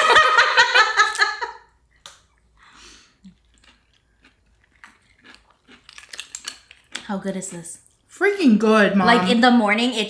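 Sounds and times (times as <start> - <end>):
quiet chewing: 1.9 - 8.1
person speaking: 8.4 - 9.8.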